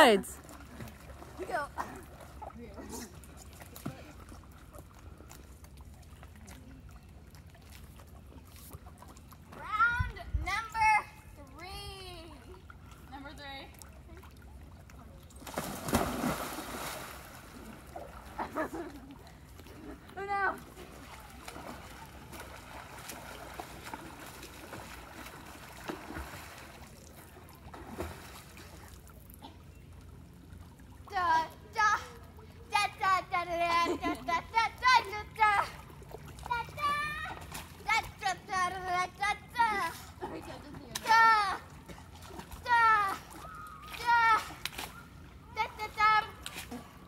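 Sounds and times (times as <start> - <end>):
water trickling and splashing: 0.0 - 47.0
swimmers splashing in water: 15.4 - 29.0.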